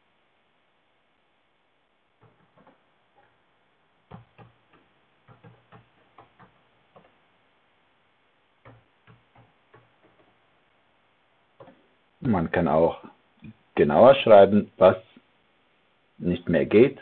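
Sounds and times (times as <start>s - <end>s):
typing on a keyboard: 4.1s - 7.1s.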